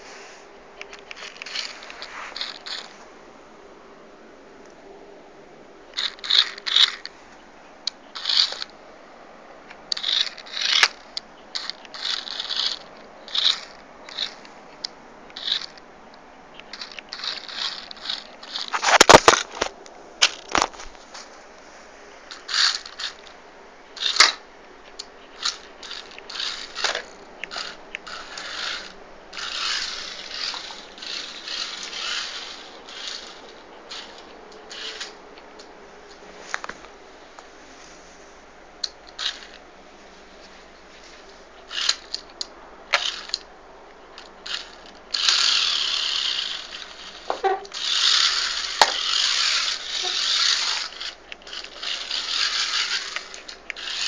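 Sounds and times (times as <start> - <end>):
toy car scraping: 0.0 - 3.1, 6.0 - 7.2, 8.0 - 8.8, 9.9 - 15.8, 16.5 - 21.3, 22.3 - 35.2, 38.8 - 39.6, 41.0 - 43.5, 44.2 - 54.0.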